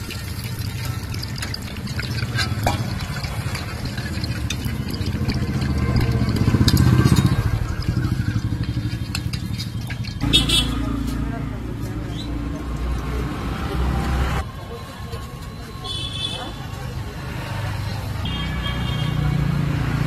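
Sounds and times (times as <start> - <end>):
chicken deep-frying in hot oil: 0.0 - 14.3.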